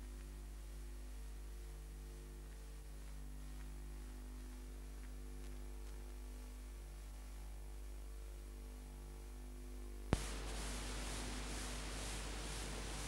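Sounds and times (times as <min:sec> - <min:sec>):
low electrical hum: 0:00.0 - 0:13.0
faint hiss: 0:10.1 - 0:13.0.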